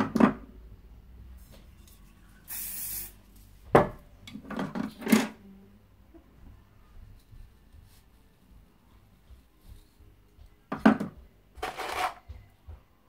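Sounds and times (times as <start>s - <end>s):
short hiss: 2.5s - 3.2s.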